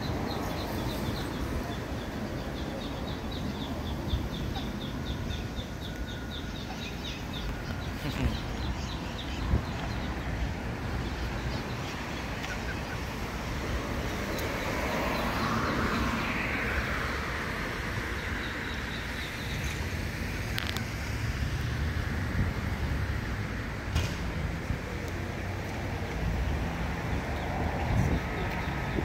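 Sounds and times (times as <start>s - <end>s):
traffic rumble: 0.0s - 29.0s
vehicle passing: 5.7s - 19.2s.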